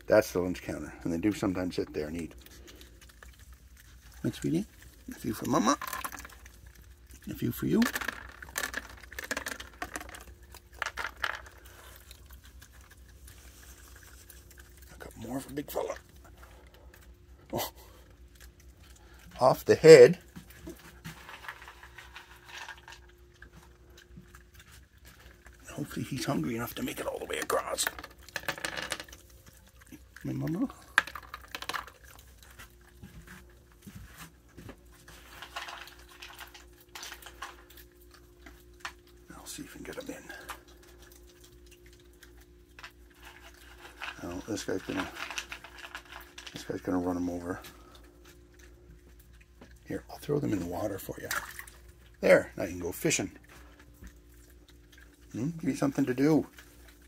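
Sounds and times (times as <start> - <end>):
animals crunching peanuts: 0.0 - 57.0
faint steady hum: 0.0 - 57.0.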